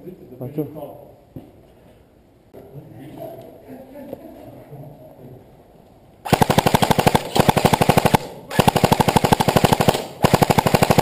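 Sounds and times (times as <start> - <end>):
airsoft rifle firing bursts: 6.3 - 11.0.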